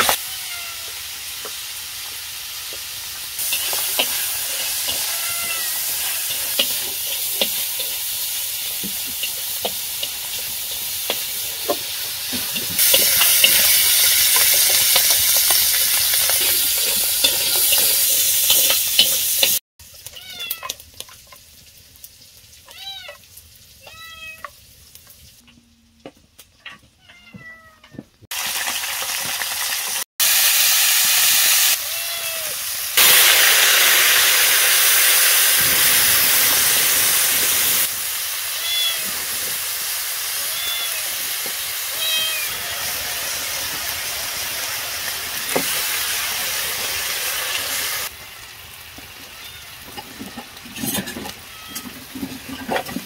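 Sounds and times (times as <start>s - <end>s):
food sizzling in a pan: 0.0s - 25.4s, 28.3s - 53.0s
cat meowing: 0.1s - 1.0s, 4.1s - 6.6s, 20.2s - 20.8s, 22.7s - 23.2s, 23.8s - 24.5s, 27.0s - 28.0s, 31.8s - 32.6s, 38.5s - 39.4s, 40.3s - 43.2s, 51.4s - 52.0s.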